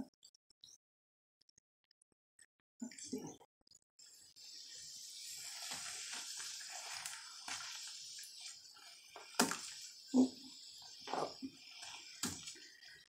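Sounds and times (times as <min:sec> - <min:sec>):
bath bomb fizzing: 0:04.3 - 0:13.0.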